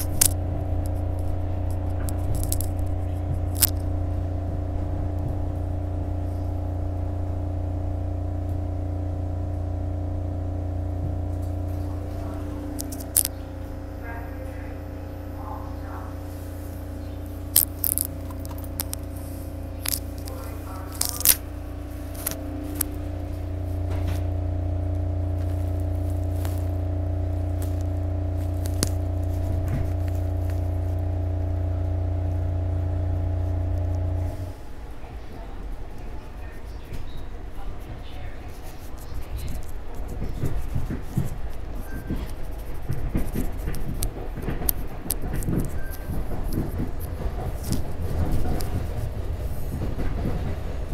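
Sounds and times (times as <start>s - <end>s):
sharp clicks and knocks: 0.0s - 4.0s, 38.5s - 50.9s
train car electrical hum: 0.0s - 50.9s.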